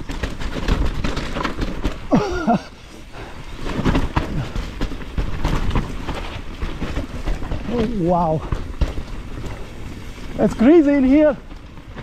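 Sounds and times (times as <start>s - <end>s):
bike tyres rumbling and rattling: 0.0s - 12.0s
person crying out: 2.1s - 2.7s.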